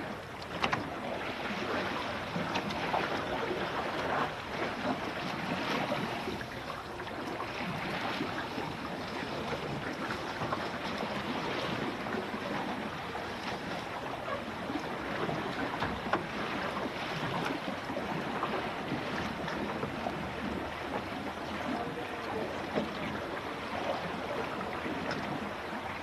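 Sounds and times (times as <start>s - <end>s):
water rushing along hull: 0.0s - 26.0s
water slapping against boat: 0.0s - 26.0s.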